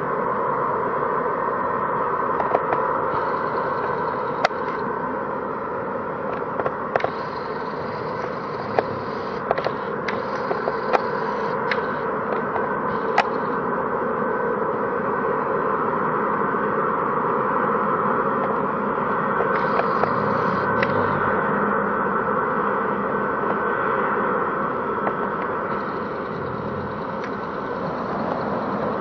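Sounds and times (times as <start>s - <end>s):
distant jet engine rushing and whining: 0.0s - 29.0s
sharp clicks: 6.3s - 13.4s, 19.4s - 21.1s.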